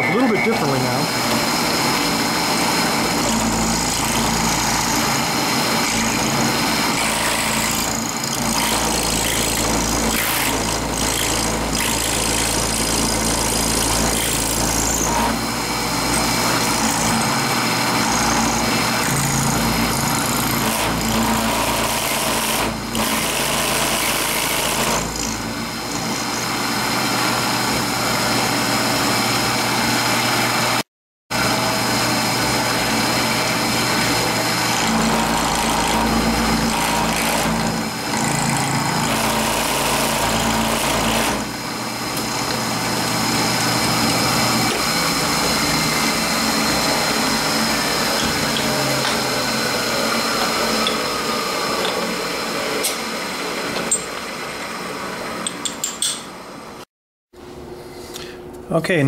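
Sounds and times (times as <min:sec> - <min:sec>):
high spindle whine: 0:00.0 - 0:07.0
milling machine cutting metal: 0:00.0 - 0:30.6, 0:31.3 - 0:56.2.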